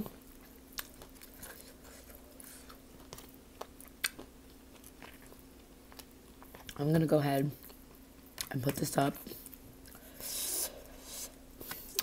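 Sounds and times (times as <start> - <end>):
close-miked chewing: 0.0 - 6.9.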